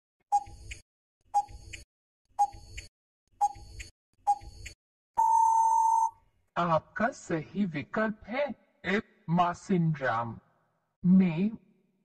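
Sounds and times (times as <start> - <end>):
long steady beep: 5.2 - 6.1.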